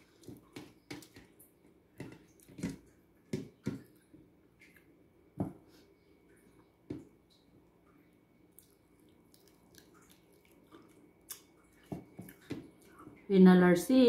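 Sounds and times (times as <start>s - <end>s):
person chewing food: 8.5s - 13.2s.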